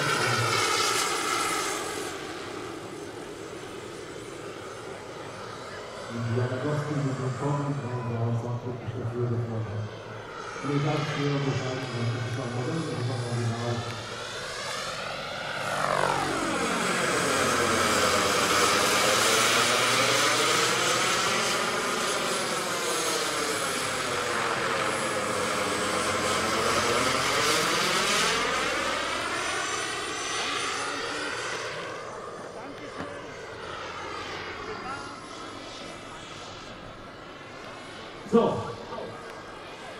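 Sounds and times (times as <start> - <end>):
helicopter rotor noise: 0.0 - 39.9
model helicopter turbine whine: 0.0 - 39.9.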